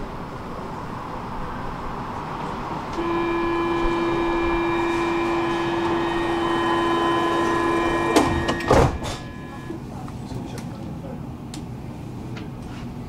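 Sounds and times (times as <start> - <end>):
door-closing warning tone: 2.9 - 9.8
sliding doors knocking shut: 3.0 - 9.7.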